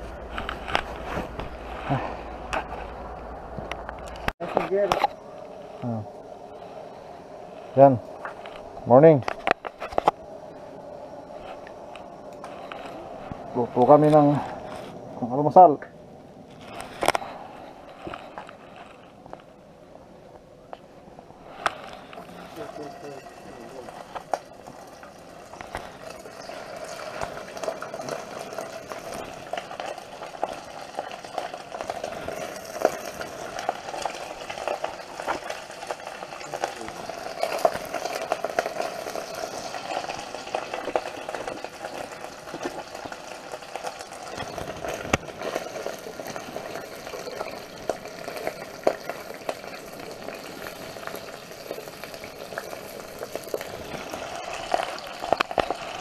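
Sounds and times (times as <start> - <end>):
sausages sizzling in a pan: 22.2 - 56.0.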